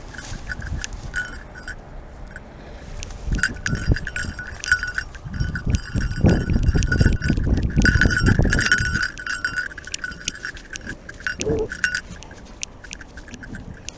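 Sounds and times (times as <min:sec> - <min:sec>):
dog collar fittings jingling: 0:00.0 - 0:02.4, 0:03.0 - 0:13.9
rumble of movement noise: 0:00.0 - 0:13.9.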